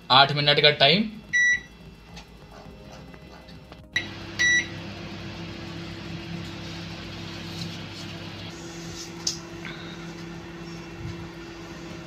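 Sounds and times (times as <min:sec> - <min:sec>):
microwave oven humming: 0:00.0 - 0:12.0.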